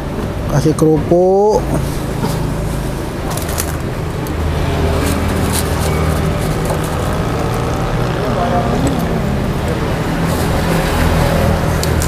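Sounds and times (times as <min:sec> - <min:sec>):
crackers crackling and crunching: 0:03.3 - 0:08.2, 0:11.8 - 0:12.0.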